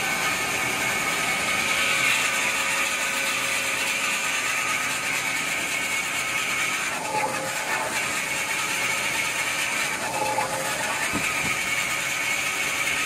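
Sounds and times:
band saw machine whirring: 0:00.0 - 0:13.0.

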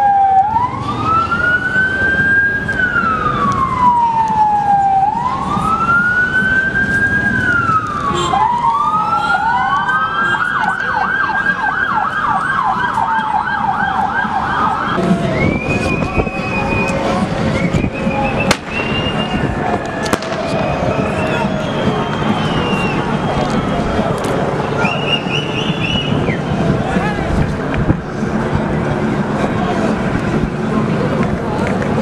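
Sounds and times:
siren yelping: 0:00.0 - 0:15.0
siren wailing: 0:00.0 - 0:26.2.

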